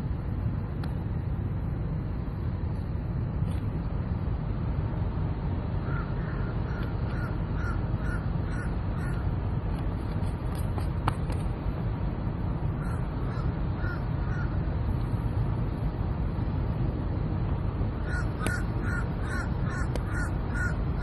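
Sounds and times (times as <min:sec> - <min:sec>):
steady low rumble: 0:00.0 - 0:21.0
crows cawing: 0:05.8 - 0:09.3, 0:12.8 - 0:14.6, 0:18.0 - 0:21.0.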